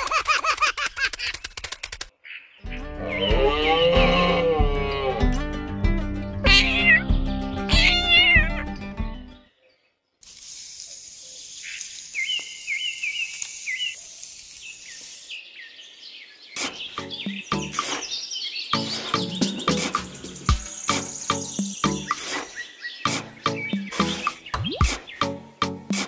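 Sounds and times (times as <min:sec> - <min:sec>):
background music: 0:02.6 - 0:09.4, 0:17.0 - 0:18.1, 0:18.7 - 0:22.4, 0:23.0 - 0:26.0
meow-like sound effects: 0:06.4 - 0:07.1, 0:07.7 - 0:08.6
steady hiss: 0:10.2 - 0:15.6
bird chirping: 0:11.2 - 0:25.4.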